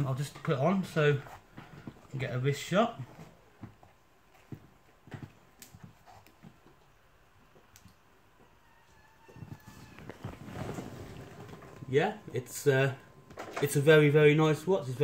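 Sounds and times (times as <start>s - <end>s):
handling noise: 9.3s - 13.9s.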